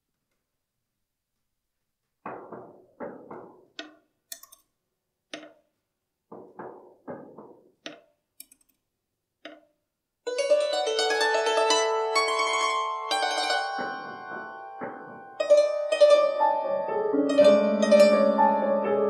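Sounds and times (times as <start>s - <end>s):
wooden knocks and taps: 2.0s - 4.6s, 5.3s - 5.7s, 6.3s - 8.6s, 9.4s - 9.7s, 13.8s - 15.4s
ringing dulcimer and piano tones: 10.3s - 19.0s.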